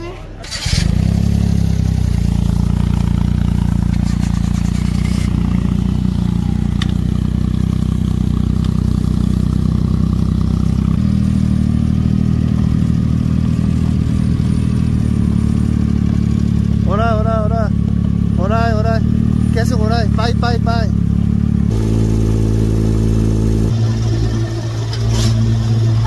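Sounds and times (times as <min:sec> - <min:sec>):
car engine running: 0:00.2 - 0:26.0.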